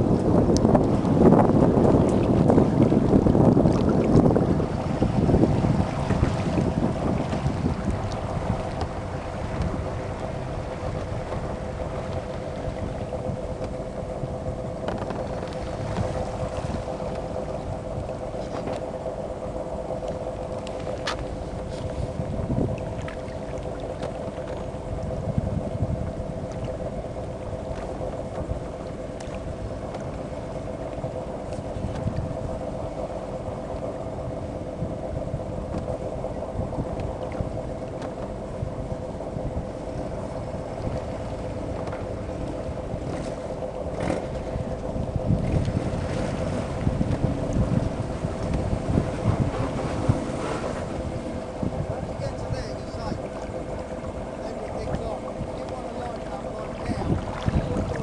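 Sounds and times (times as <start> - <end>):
boat engine humming: 0.0 - 58.0
wind buffeting microphone: 0.0 - 58.0.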